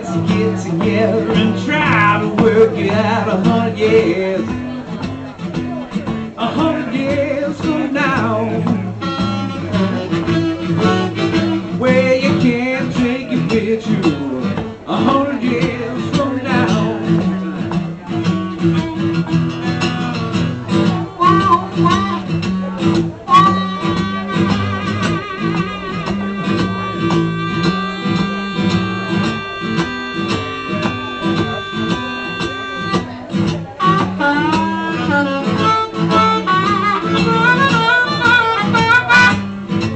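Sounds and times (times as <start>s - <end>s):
strummed acoustic guitar: 0.0s - 39.9s
harmonica solo with bending notes: 21.1s - 22.5s, 23.3s - 39.9s.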